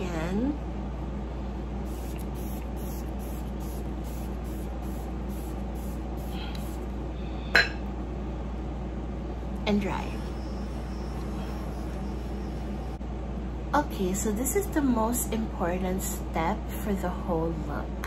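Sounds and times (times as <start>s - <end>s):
spray bottle hisses: 1.9s - 6.9s.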